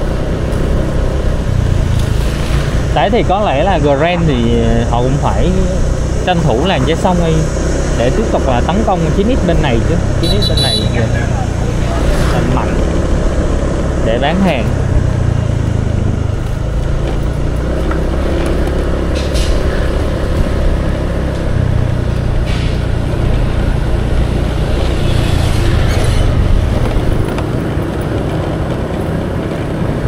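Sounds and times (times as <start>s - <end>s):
vehicle road rumble: 0.0s - 30.0s.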